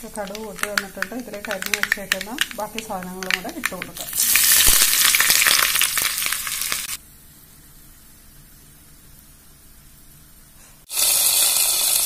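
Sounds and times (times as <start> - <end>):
food sizzling in hot oil: 0.0 - 7.0, 10.9 - 12.0.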